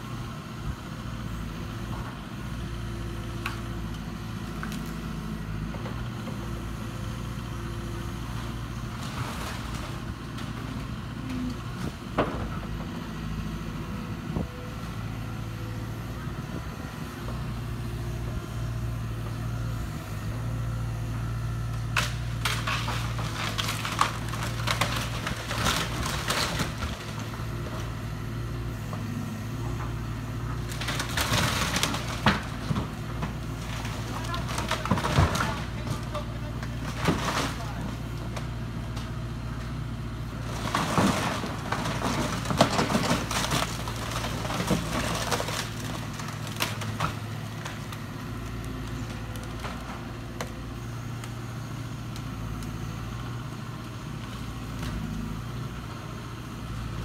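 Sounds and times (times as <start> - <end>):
excavator diesel engine running: 0.0 - 57.0
wood cracking and splintering: 3.3 - 5.2, 8.5 - 12.8, 21.6 - 53.1.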